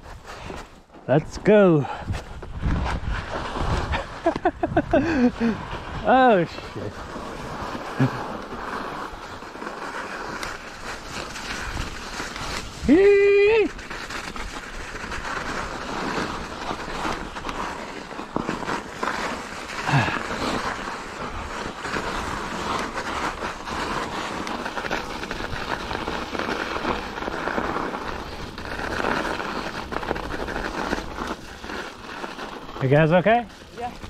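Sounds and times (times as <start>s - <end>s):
tyre noise: 0.0s - 34.0s
wind noise on microphone: 1.8s - 8.2s, 11.2s - 17.1s.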